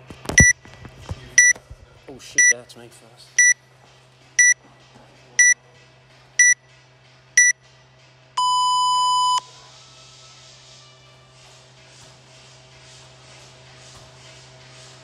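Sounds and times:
short high beeps: 8.4s - 9.4s
long low beep: 8.4s - 9.5s.

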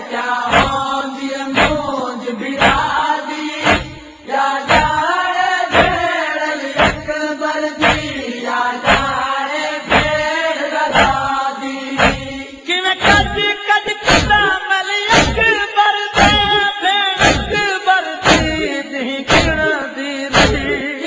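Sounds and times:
men chanting mournful melody: 0.0s - 21.0s
deep drum thump: 0.5s - 0.8s, 1.6s - 1.9s, 2.6s - 2.9s, 3.6s - 4.0s, 4.7s - 5.0s, 5.7s - 6.0s, 6.8s - 7.1s, 7.8s - 8.1s, 8.9s - 9.2s, 9.9s - 10.2s, 11.0s - 11.3s, 12.0s - 12.4s, 13.0s - 13.4s, 14.1s - 15.5s, 16.2s - 16.6s, 17.2s - 17.6s, 18.3s - 18.7s, 19.3s - 19.7s, 20.4s - 20.8s.

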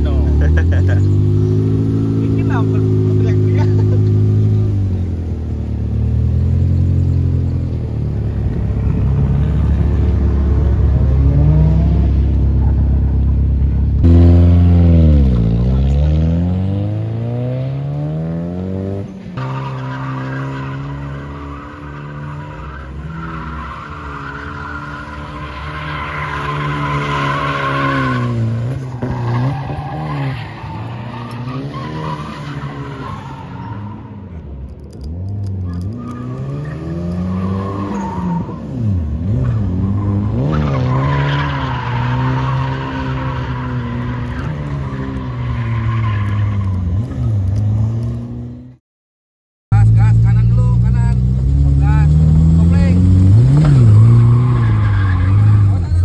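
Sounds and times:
car engine revving: 0.0s - 48.8s, 49.7s - 56.0s
tyres squealing: 52.9s - 56.0s.

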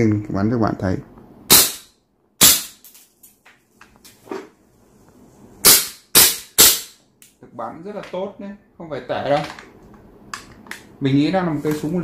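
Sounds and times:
airsoft pistol shots: 1.5s - 2.8s, 5.6s - 7.0s.

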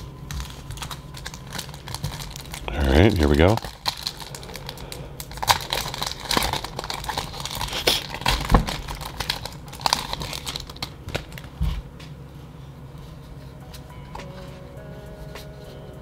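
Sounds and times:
foil wrapper crinkling and tearing: 0.0s - 12.0s.

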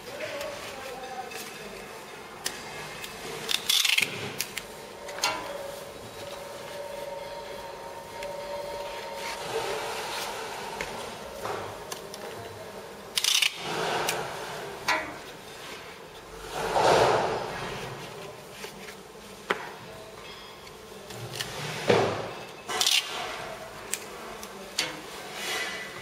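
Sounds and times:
faint steady hum: 0.0s - 26.0s
paper rubbing and scraping: 2.8s - 12.4s.

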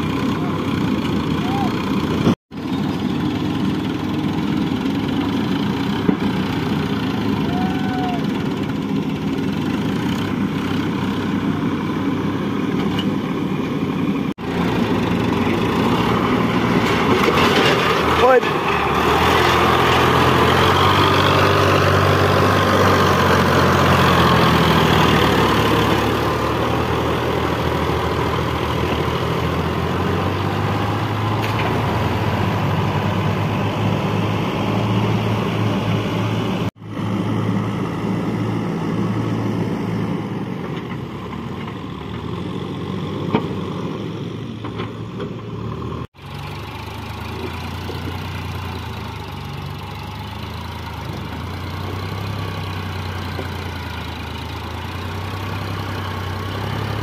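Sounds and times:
backhoe loader diesel engine: 0.0s - 57.0s
tractor diesel engine: 0.0s - 57.0s.

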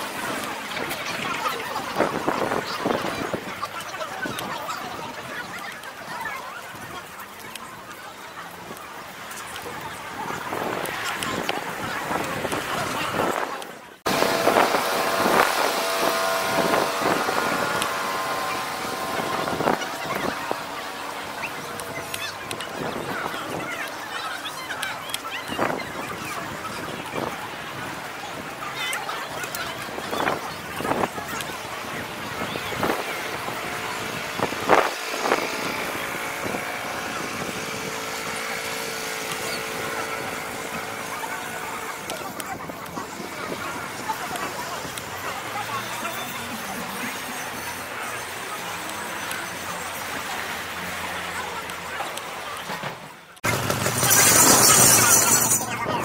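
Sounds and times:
wind on microphone: 10.1s - 23.8s
motor humming: 14.1s - 24.2s.

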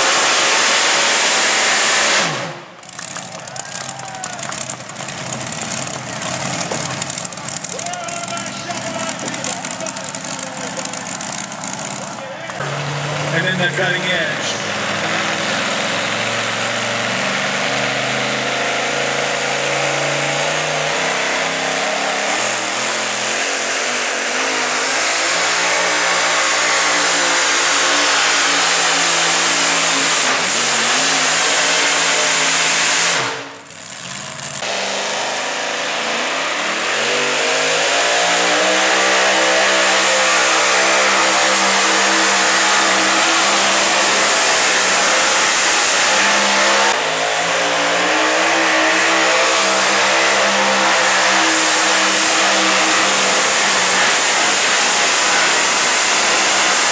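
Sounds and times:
truck engine at high revs: 0.0s - 56.9s.

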